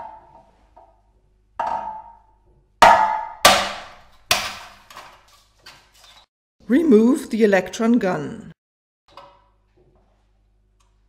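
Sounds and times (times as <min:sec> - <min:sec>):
hammer striking glass: 0:02.8 - 0:04.8.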